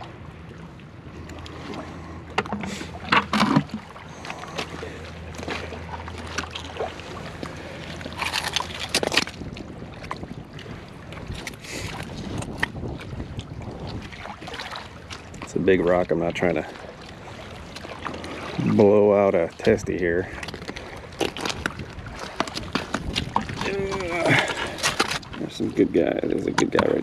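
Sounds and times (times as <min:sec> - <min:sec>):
low steady hum: 0:00.0 - 0:27.0
oyster shells crunching and knocking: 0:08.1 - 0:09.4, 0:20.5 - 0:25.2.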